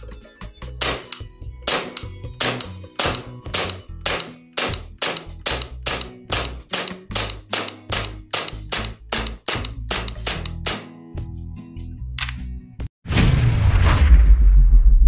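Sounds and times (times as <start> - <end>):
airsoft pistol shots: 0.8 - 10.9.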